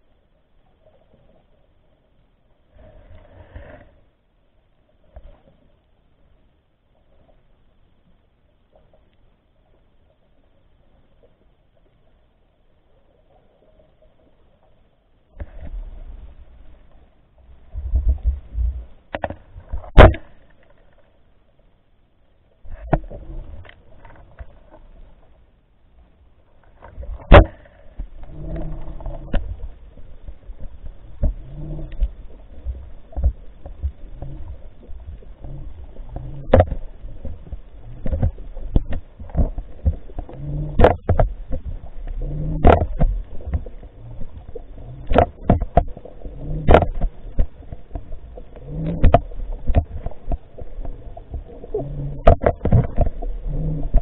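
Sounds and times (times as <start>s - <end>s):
low underwater rumble: 0.0s - 54.0s
underwater knocks and clicks: 15.3s - 16.3s, 17.6s - 21.0s, 22.7s - 25.3s, 26.6s - 54.0s.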